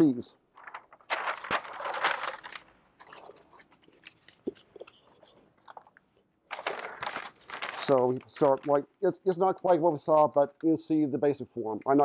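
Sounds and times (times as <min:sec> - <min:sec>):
stiff paper rustling and crinkling: 0:00.6 - 0:05.9, 0:06.5 - 0:08.8.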